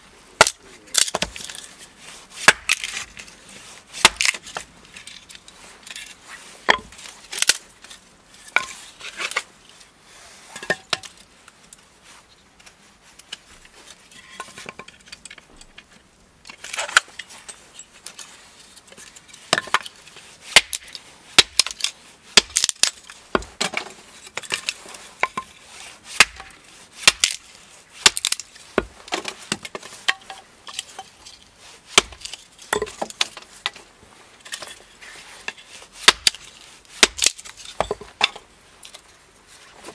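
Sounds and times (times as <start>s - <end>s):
hatchet chopping kindling: 0.4s - 1.4s, 2.4s - 3.0s, 4.0s - 4.6s, 20.5s - 21.8s, 22.4s - 24.5s, 26.1s - 27.4s, 28.0s - 30.4s, 31.9s - 33.8s, 36.0s - 36.4s, 37.0s - 38.4s
split sticks clattering: 26.2s - 39.1s.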